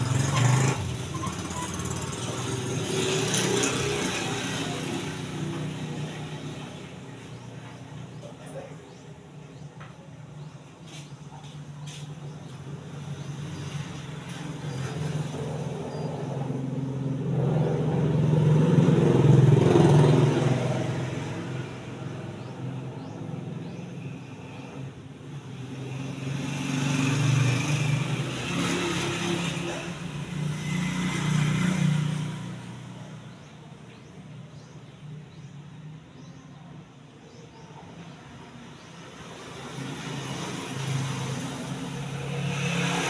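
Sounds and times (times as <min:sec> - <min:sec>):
motor vehicles passing: 0:00.0 - 0:43.0.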